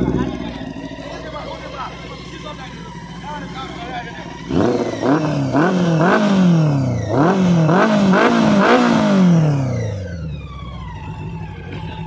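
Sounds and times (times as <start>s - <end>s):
motorcycle engine revving and idling: 0.0s - 12.0s.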